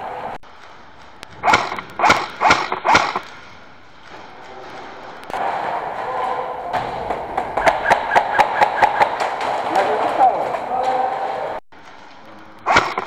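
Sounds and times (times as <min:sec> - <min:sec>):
steady background hum: 0:00.0 - 0:13.0
airsoft rifle shots: 0:01.2 - 0:11.6, 0:12.6 - 0:13.0
loud bark-like burst: 0:04.6 - 0:11.6.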